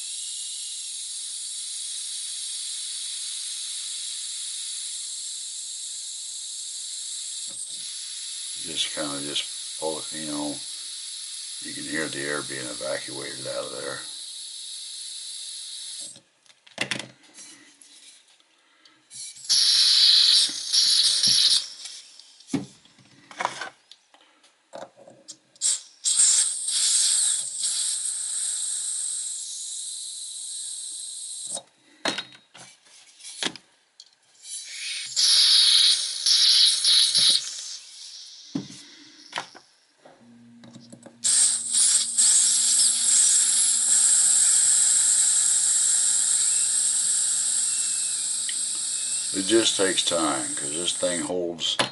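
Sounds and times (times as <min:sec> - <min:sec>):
gas hissing from lighter valve: 0:00.0 - 0:16.2, 0:19.1 - 0:22.6, 0:25.6 - 0:31.6, 0:34.4 - 0:39.4, 0:41.2 - 0:51.8.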